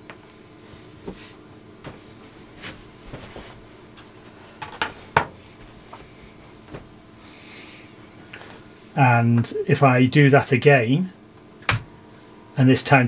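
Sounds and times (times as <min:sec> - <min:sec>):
faint steady hum: 0:00.0 - 0:13.0
clicks and knocks at workbench: 0:04.6 - 0:05.4.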